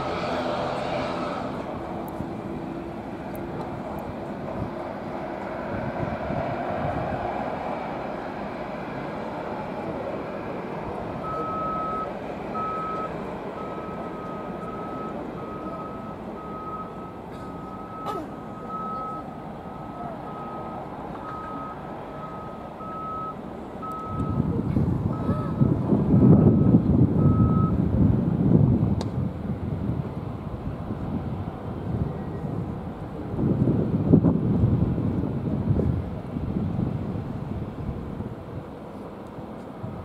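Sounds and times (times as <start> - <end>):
jet engines rumbling: 0.0 - 40.0
vehicle reversing alarm beeps: 11.2 - 27.8.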